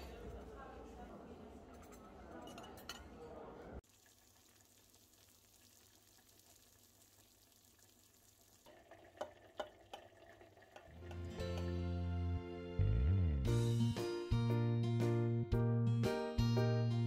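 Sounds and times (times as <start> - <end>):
music: 11.0 - 17.0.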